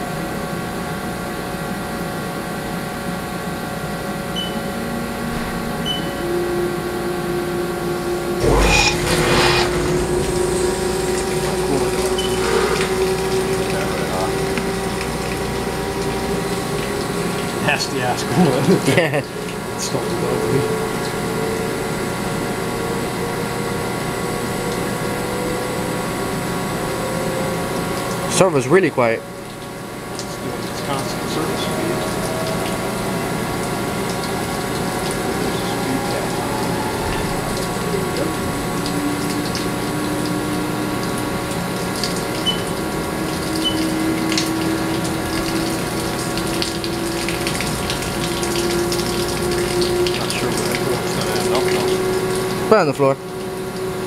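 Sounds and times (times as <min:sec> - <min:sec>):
lathe machine hum with tones: 0:08.4 - 0:14.6
coolant jet hiss: 0:08.4 - 0:20.4
coolant jet hissing and splashing: 0:08.4 - 0:21.2, 0:27.9 - 0:54.0.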